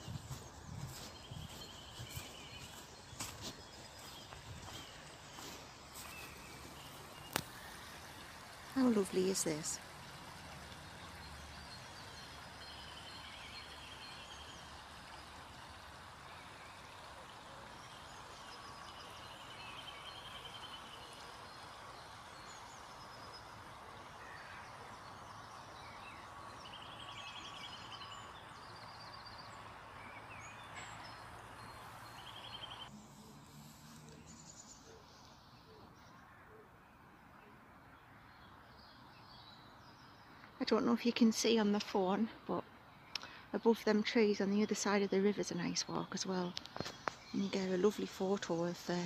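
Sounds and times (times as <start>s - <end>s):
small birds singing: 0.0s - 49.0s
shallow river rippling over stones: 0.1s - 35.1s.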